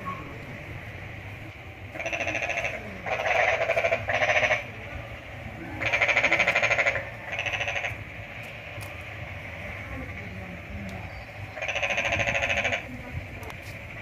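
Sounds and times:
animal pulsing trill calls: 1.9 - 4.8, 5.6 - 8.1, 11.1 - 13.0.

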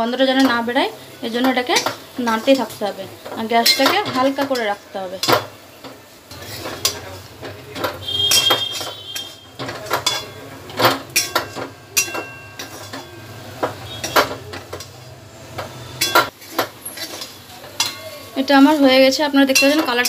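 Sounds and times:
metal spatula scraping a pan: 0.2 - 20.0.

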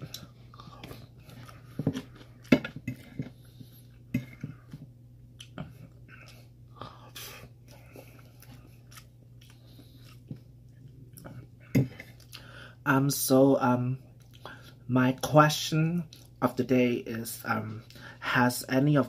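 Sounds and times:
close-up chewing: 0.0 - 12.5.

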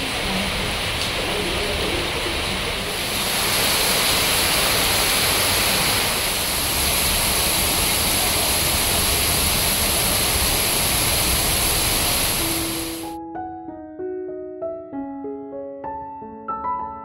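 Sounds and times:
heavy rain on foliage: 0.0 - 13.2
soft piano music: 12.4 - 17.0.

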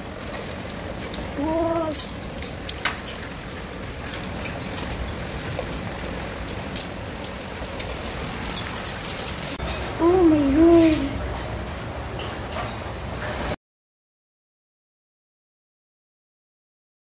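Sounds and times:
hail hissing: 0.0 - 13.6
hailstones ticking: 0.0 - 13.6.

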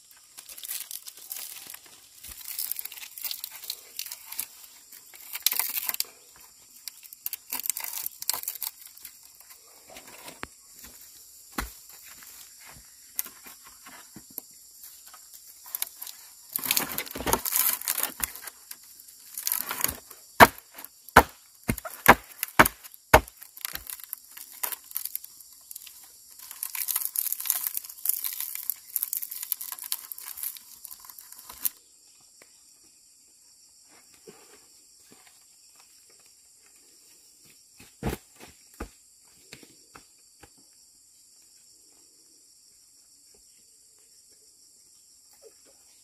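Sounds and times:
leaf fibre crackling and rustling: 0.0 - 9.5, 15.0 - 31.8
wooden poles knocking together: 16.6 - 18.6, 19.4 - 25.1.

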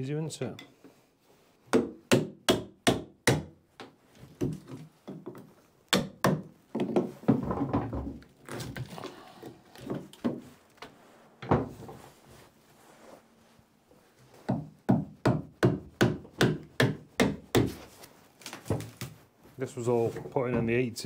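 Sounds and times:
wood cracking and scraping: 7.4 - 10.2
hammer knocking on timber: 14.5 - 17.8.

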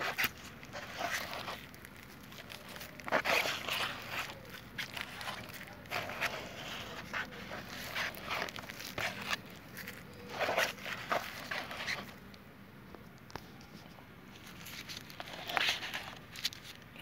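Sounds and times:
plastic spreader scraping filler: 0.0 - 12.2, 14.7 - 16.6.

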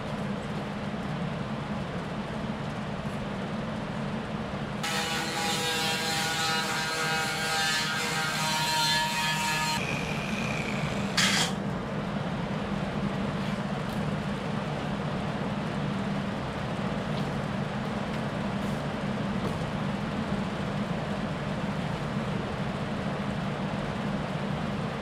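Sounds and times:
power tool running: 4.8 - 11.6
steady low hum: 9.6 - 25.0.

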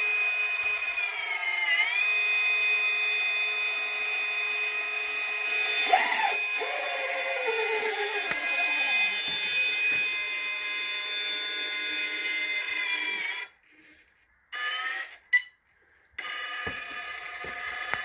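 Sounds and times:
electric motor whining: 0.0 - 13.5.

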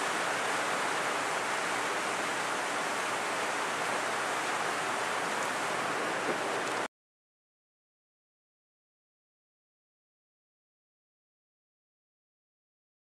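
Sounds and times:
background hiss: 0.0 - 6.9.

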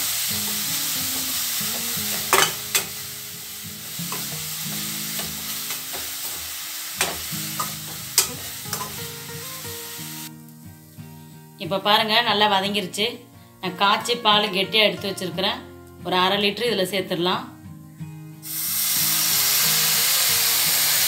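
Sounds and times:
carrot sizzling in a pan: 0.0 - 12.9, 18.4 - 21.0
metal spatula scraping a pan: 0.2 - 3.1, 3.8 - 9.1.

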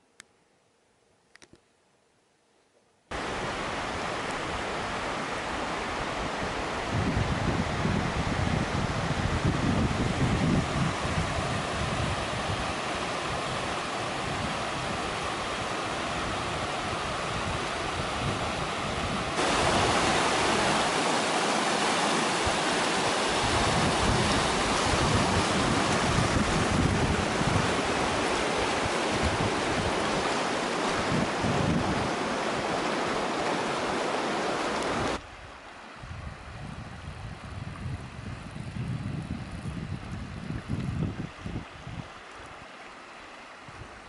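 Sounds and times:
river rapids rushing over rocks: 12.3 - 35.2.

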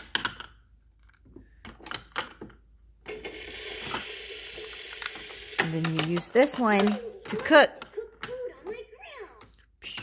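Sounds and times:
plastic toy food clacking: 4.9 - 8.8.

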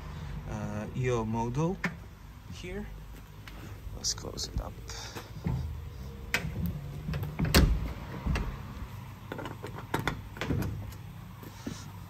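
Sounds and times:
metal doors knocking shut: 6.4 - 8.7, 9.4 - 10.9.

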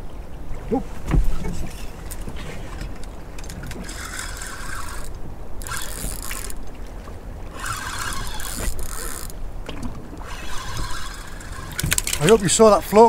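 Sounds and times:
wind and water rumble: 0.0 - 13.0
fishing reel winding: 3.4 - 6.6, 7.5 - 9.4, 10.2 - 12.4.

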